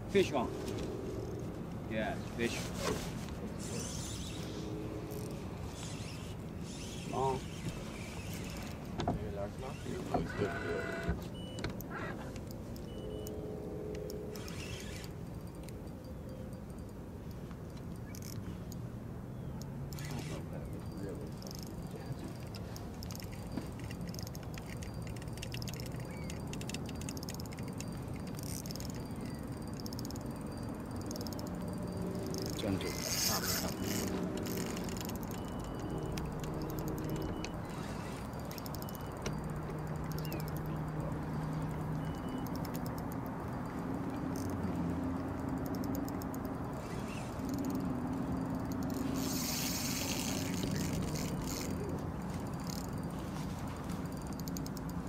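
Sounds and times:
high buzzing: 0.0 - 2.7, 3.5 - 16.9, 19.9 - 55.0
steady low hum: 0.0 - 55.0
fishing reel clicking: 1.2 - 1.4, 3.6 - 8.9, 9.6 - 18.8, 19.6 - 55.0
low steady rumble: 24.5 - 55.0.

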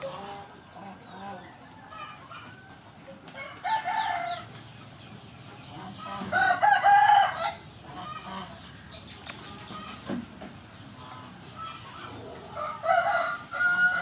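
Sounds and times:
rooster crowing: 3.4 - 4.5, 6.3 - 7.6, 12.5 - 14.0.

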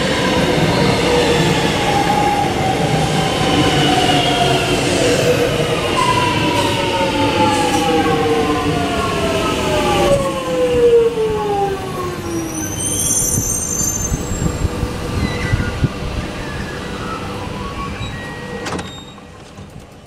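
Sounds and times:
high brake squeal: 12.3 - 19.4.

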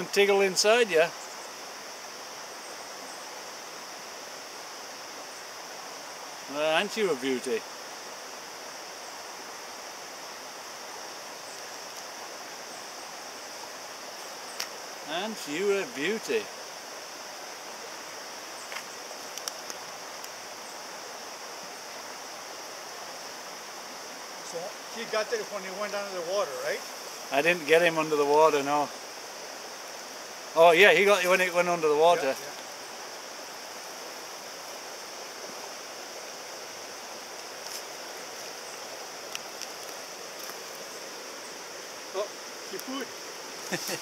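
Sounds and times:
stream water flowing: 0.0 - 44.0
faint ticks: 14.5 - 14.8, 18.6 - 20.4, 32.4 - 32.8, 39.2 - 40.8.

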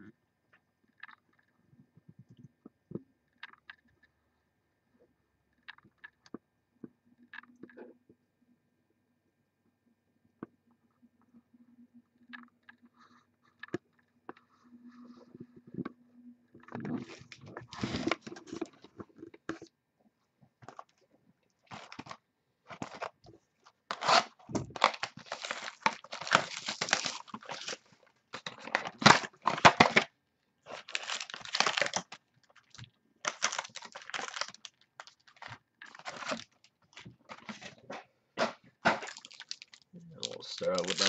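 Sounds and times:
plastic wrap crinkling and tearing: 16.8 - 18.8, 21.6 - 23.2, 23.8 - 37.8, 38.8 - 41.0.

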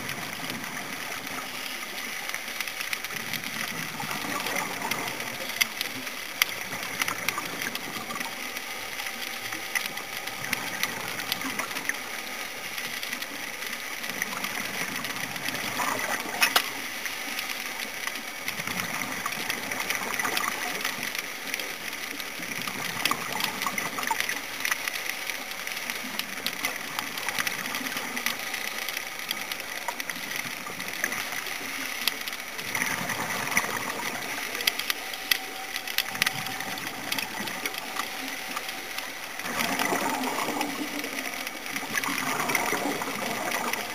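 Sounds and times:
underwater hiss with crackles: 0.0 - 43.9
bubbles venting: 3.1 - 8.4, 14.1 - 16.7, 32.5 - 34.7, 35.4 - 43.9.

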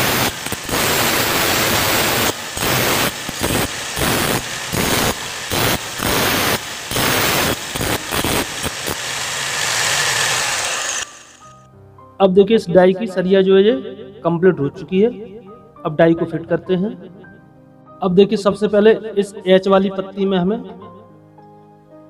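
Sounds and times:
grinder grinding steel: 0.0 - 11.6.

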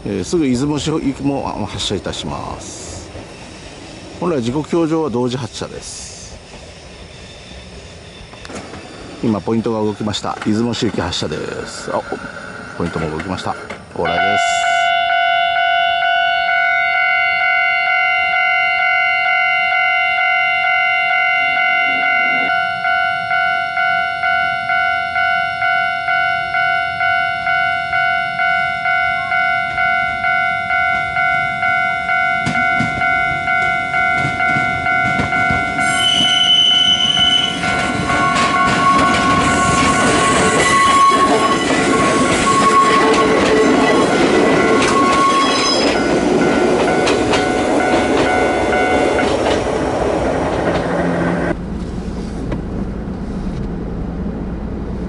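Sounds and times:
train passing wheel noise: 0.0 - 16.7, 25.6 - 55.0
train horn: 14.1 - 43.3
level crossing bell ringing: 14.1 - 49.3.

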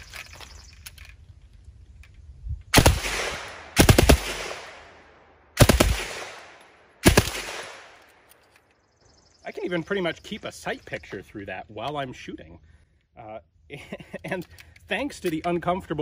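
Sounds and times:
gunshot echo: 2.8 - 5.0, 5.6 - 8.0.

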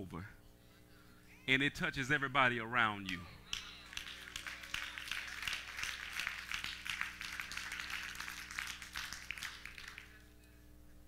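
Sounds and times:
congregation applauding: 3.5 - 10.3.

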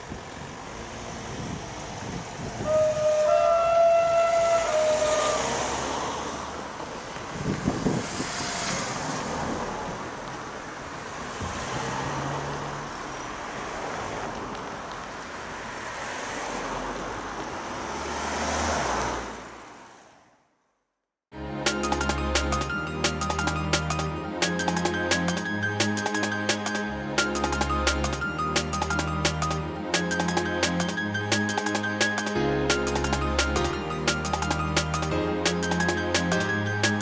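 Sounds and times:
vehicles driving over level crossing: 0.0 - 19.8.

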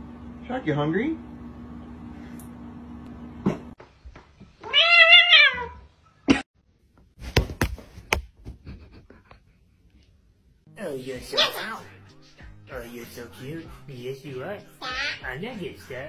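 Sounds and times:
cat meowing: 4.6 - 5.9, 14.8 - 15.2.

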